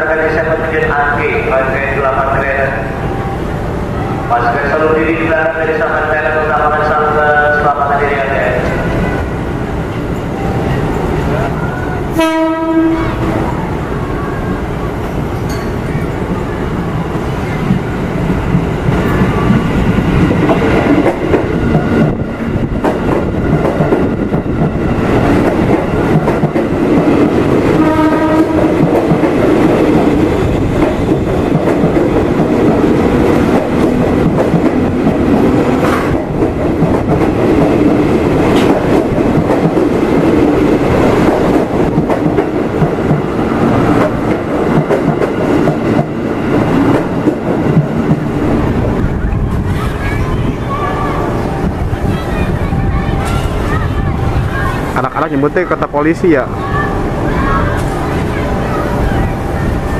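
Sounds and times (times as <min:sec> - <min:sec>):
train wheels rumbling over track: 0:00.0 - 0:59.9
train horn blast: 0:12.1 - 0:13.5, 0:27.7 - 0:28.8.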